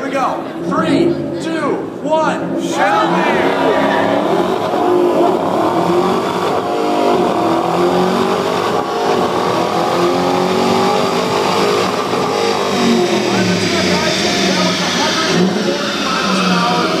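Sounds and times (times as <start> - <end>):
car engine revving on dynamometer: 0.0 - 17.0.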